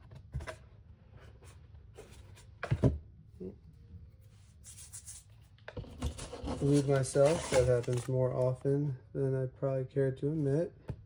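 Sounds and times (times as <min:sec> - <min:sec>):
cardboard scraping: 0:05.8 - 0:08.2.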